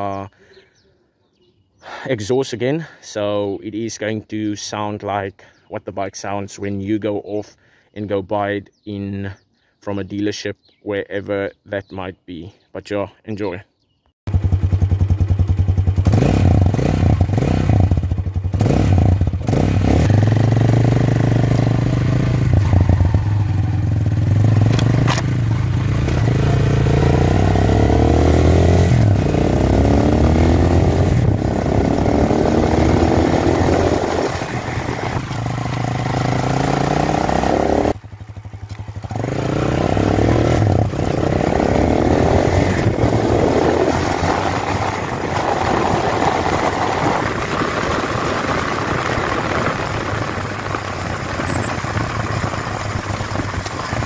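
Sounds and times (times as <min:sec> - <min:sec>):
motorcycle engine revving: 0:14.3 - 0:54.0.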